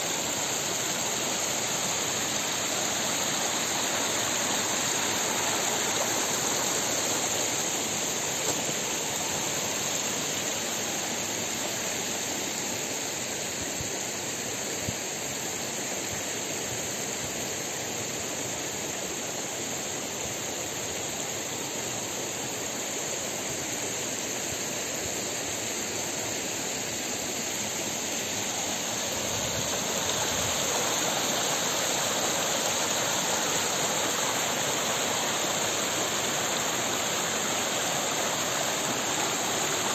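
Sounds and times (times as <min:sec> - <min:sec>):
stream flowing over rocks: 0:00.0 - 0:12.1, 0:25.5 - 0:39.9.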